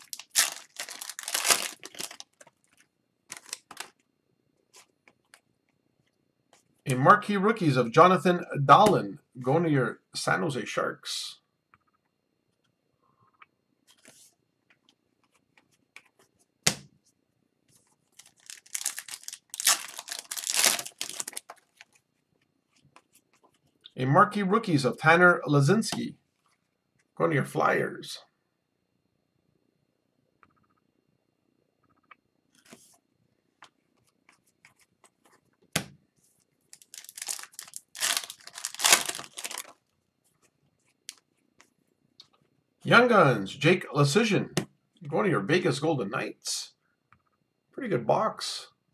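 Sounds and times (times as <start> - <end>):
foil wrapper crinkling and tearing: 0.0 - 4.0, 18.1 - 22.0, 36.7 - 39.9.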